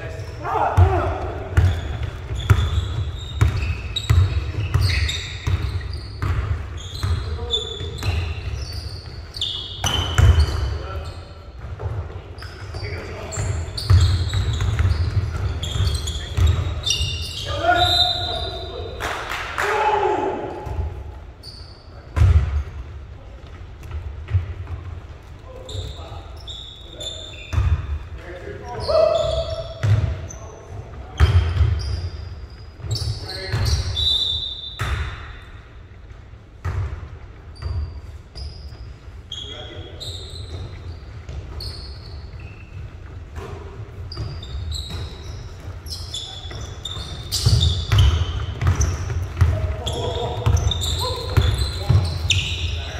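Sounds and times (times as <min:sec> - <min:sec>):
sneaker squeaks: 0:00.0 - 0:19.0, 0:20.5 - 0:52.9
players calling out: 0:00.1 - 0:05.3, 0:12.8 - 0:21.0, 0:45.9 - 0:52.9
basketball bouncing on court: 0:00.7 - 0:10.8, 0:11.5 - 0:17.4, 0:22.1 - 0:26.0, 0:27.3 - 0:28.2, 0:29.2 - 0:30.4, 0:31.0 - 0:32.2, 0:34.8 - 0:35.4, 0:36.6 - 0:38.5, 0:40.4 - 0:52.9.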